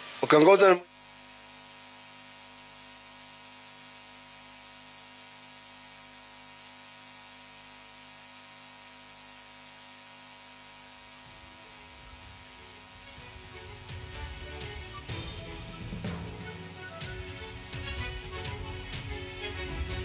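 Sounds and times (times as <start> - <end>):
faint hiss: 0.0 - 4.3, 9.8 - 20.0
electrical mains hum: 0.0 - 20.0.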